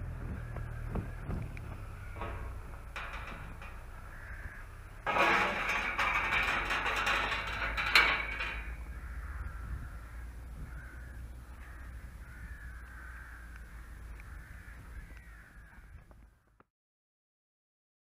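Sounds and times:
crows cawing: 0:00.4 - 0:02.6, 0:04.0 - 0:05.0, 0:08.8 - 0:16.4.

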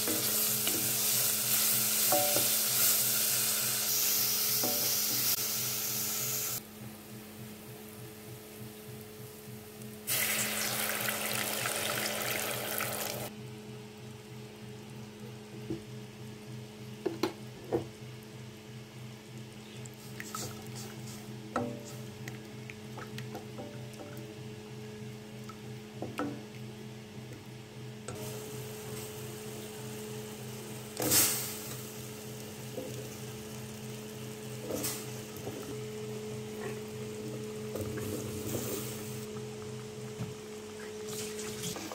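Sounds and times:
paste sizzling in a pot: 0:00.0 - 0:06.6, 0:10.1 - 0:13.3
light sizzle from pot: 0:00.0 - 0:13.4, 0:19.3 - 0:41.9
water poured into hot pot hissing: 0:10.1 - 0:13.3.

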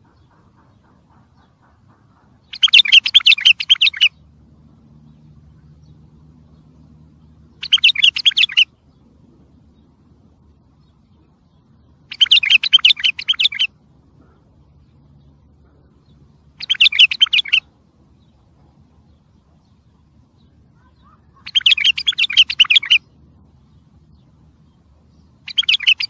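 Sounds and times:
bulbul singing: 0:00.0 - 0:26.0.

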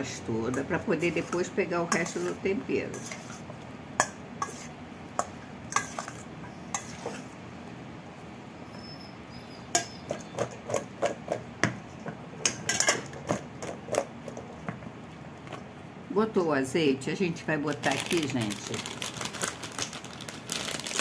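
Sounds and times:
metal spoon scraping steel bowl: 0:00.5 - 0:03.5, 0:04.4 - 0:04.7, 0:05.7 - 0:07.3.

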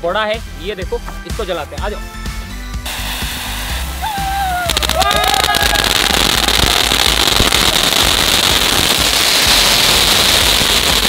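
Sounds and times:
firework hissing and crackling: 0:02.8 - 0:11.0.

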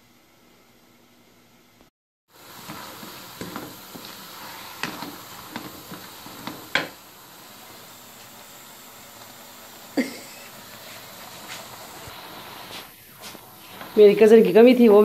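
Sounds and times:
greens sizzling in a pan: 0:02.3 - 0:15.0
wooden spoon knocking on pan: 0:04.8 - 0:07.0.

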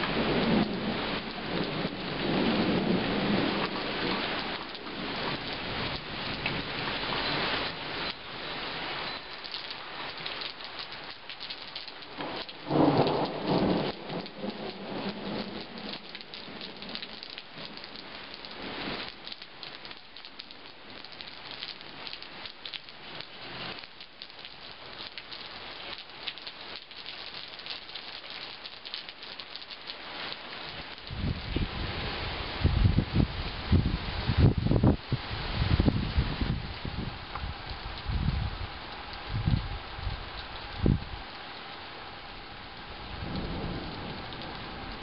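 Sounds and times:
rumble of thunder: 0:00.0 - 0:06.7, 0:12.2 - 0:17.8, 0:42.9 - 0:45.0
heavy rain falling: 0:00.0 - 0:45.0
raindrops pattering on surfaces: 0:00.0 - 0:45.0.

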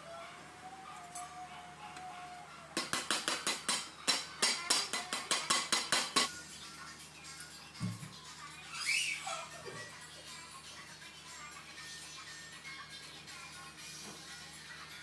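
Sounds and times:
metal knife tapping on a pot: 0:02.8 - 0:06.3.

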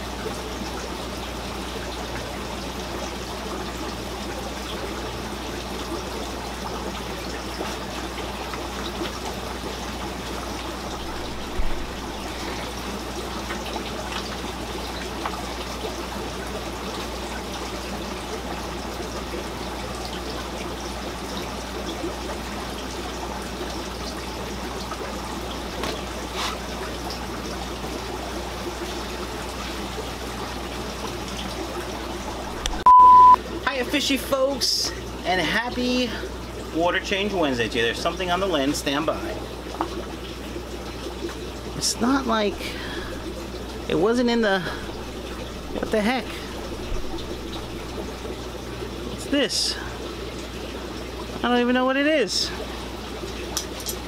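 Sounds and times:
low steady hum: 0:00.0 - 0:54.0
trickle of running water: 0:00.0 - 0:54.0.

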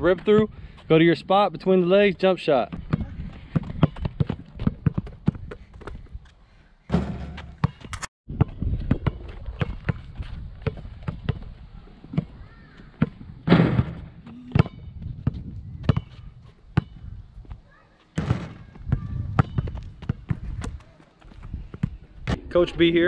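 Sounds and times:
basketball bouncing on rubber court: 0:02.7 - 0:06.0, 0:14.6 - 0:16.2.

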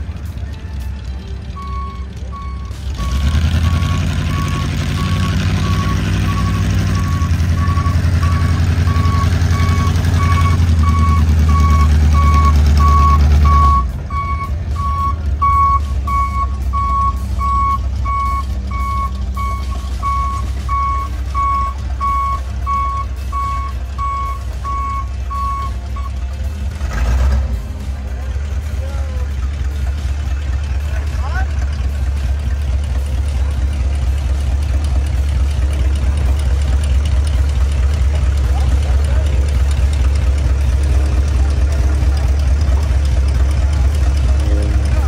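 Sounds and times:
monster truck engine running: 0:00.0 - 0:45.0
reversing beeper: 0:00.6 - 0:26.2, 0:43.8 - 0:45.0.

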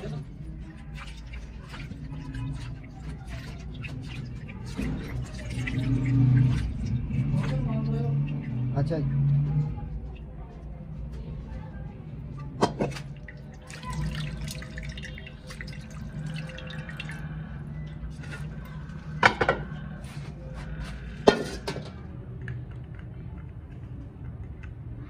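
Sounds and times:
hands sloshing liquid in basin: 0:00.0 - 0:10.4, 0:12.6 - 0:21.8
dripping: 0:00.0 - 0:20.0.

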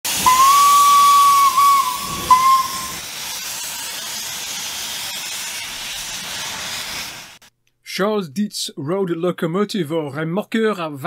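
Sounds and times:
steam hissing: 0:00.0 - 0:07.5
steam locomotive whistle: 0:00.1 - 0:03.1.

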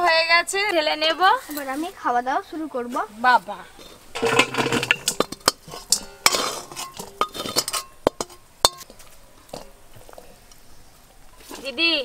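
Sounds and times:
metal spatula scraping wok: 0:03.7 - 0:10.8.

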